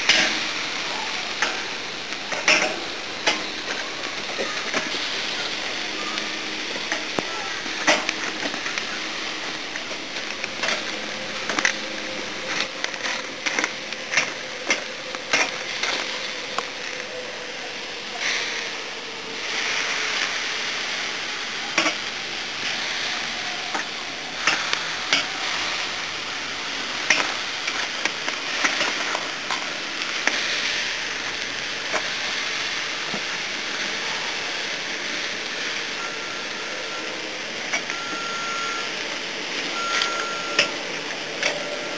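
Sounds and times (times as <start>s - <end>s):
meat sizzling on a grill: 0.0s - 41.9s
metal tongs scraping grill: 2.3s - 5.5s, 6.7s - 17.0s.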